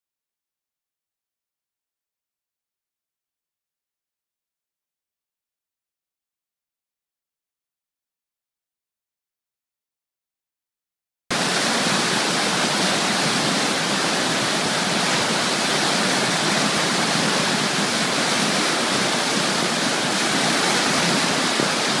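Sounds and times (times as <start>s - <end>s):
churning white water rushing: 11.3s - 22.0s.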